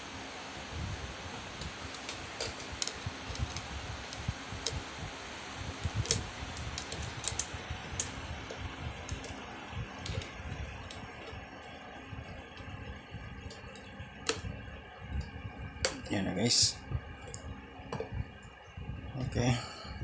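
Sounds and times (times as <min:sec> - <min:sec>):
small parts clicking and tapping: 0:01.6 - 0:04.9, 0:05.8 - 0:14.5, 0:15.1 - 0:16.2.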